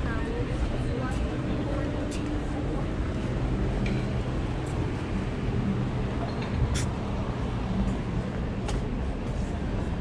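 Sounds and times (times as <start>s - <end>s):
low rumble of traffic: 0.0s - 10.0s
vehicle engine hum: 0.0s - 10.0s.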